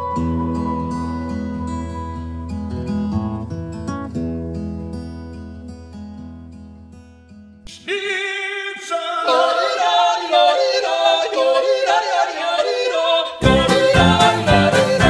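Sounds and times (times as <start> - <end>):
person yodeling: 7.7 - 15.0
guitar note: 13.4 - 15.0.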